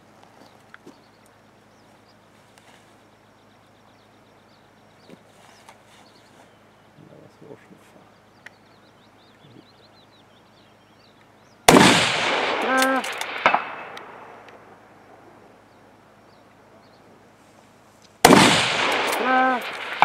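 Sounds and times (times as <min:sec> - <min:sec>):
rifle shots with echo: 0:11.7 - 0:14.8, 0:18.2 - 0:20.0.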